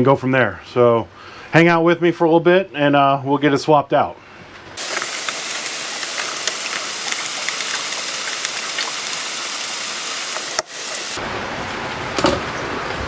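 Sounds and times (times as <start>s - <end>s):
heavy rain on a boat: 4.8s - 13.0s.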